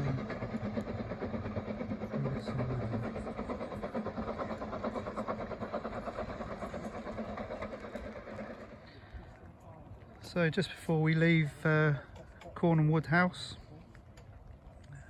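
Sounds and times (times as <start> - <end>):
steam locomotive exhaust beats: 0.0 - 15.0.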